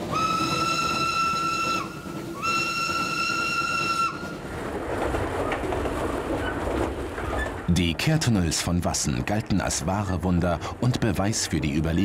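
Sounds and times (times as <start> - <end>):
train running noise: 0.0 - 12.0
train whistle blasts: 0.1 - 4.3.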